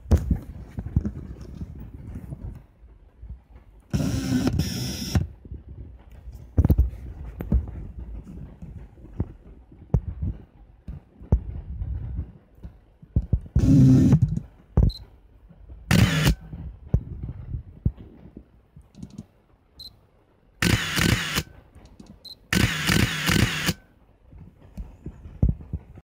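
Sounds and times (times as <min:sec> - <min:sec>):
camera film winding motor: 0:15.9 - 0:16.4, 0:20.6 - 0:21.5, 0:22.5 - 0:23.8
camera shutter release: 0:15.9 - 0:16.4, 0:20.6 - 0:21.5, 0:22.5 - 0:23.8
small mechanical clicks: 0:20.6 - 0:23.8.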